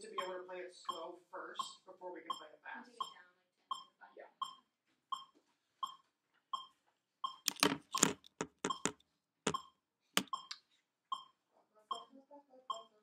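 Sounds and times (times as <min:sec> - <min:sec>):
electronic metronome beeping: 0:03.0 - 0:06.0, 0:06.6 - 0:10.6.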